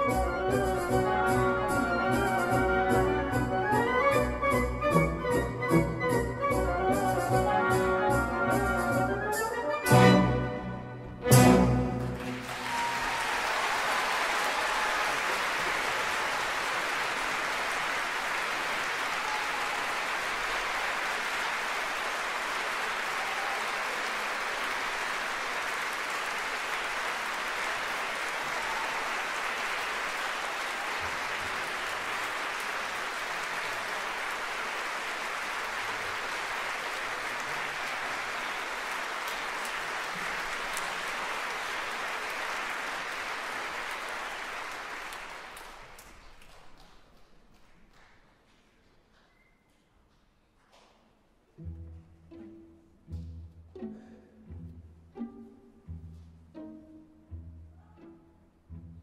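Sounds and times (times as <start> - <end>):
audience applauding: 11.8 - 51.1.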